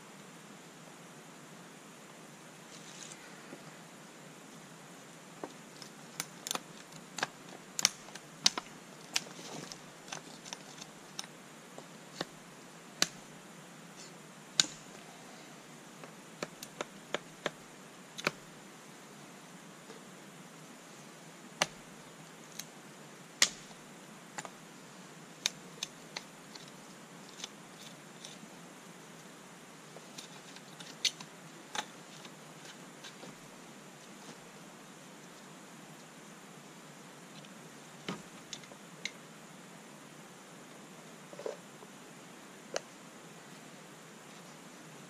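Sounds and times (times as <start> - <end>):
knife carving wood clicks: 6.2 - 9.3, 13.0 - 13.2, 14.6 - 14.8, 18.2 - 18.4.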